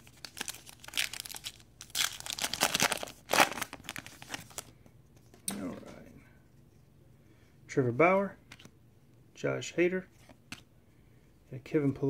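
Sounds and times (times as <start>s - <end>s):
wrapper tearing and crinkling: 0.0s - 4.7s.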